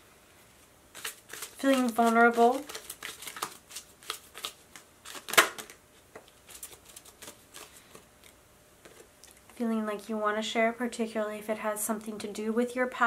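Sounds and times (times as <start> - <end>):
cards shuffling and snapping: 0.9 - 9.1.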